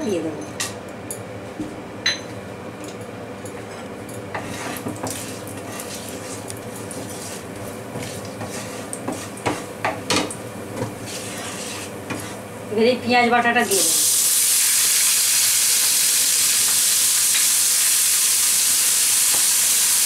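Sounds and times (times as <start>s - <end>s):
spatula scraping a frying pan: 4.3s - 9.8s, 10.7s - 12.5s
spices sizzling in oil: 4.4s - 12.8s, 13.4s - 20.0s.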